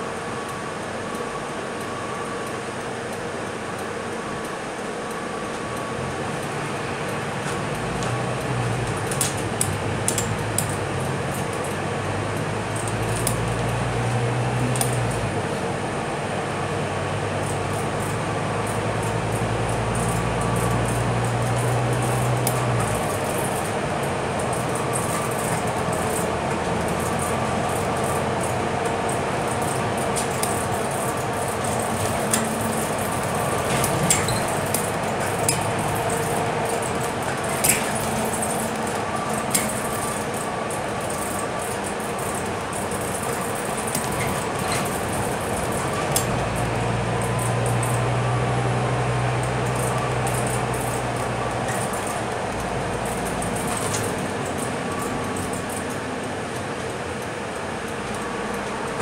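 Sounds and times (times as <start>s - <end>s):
bus engine and road noise: 0.0s - 59.0s
rattles and clicks: 17.4s - 48.2s, 49.4s - 59.0s.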